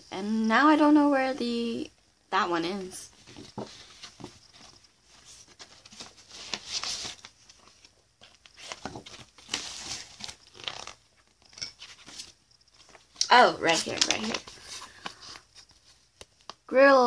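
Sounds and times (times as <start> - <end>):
packaging and paper rustling: 3.1 - 16.7.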